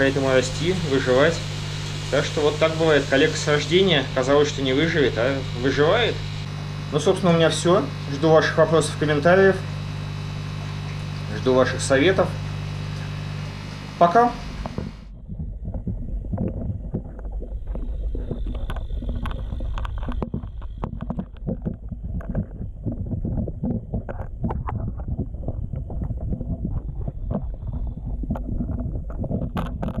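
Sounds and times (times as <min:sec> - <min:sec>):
underwater rumble of moving water: 0:00.0 - 0:30.0
fish knocking against camera: 0:14.6 - 0:30.0.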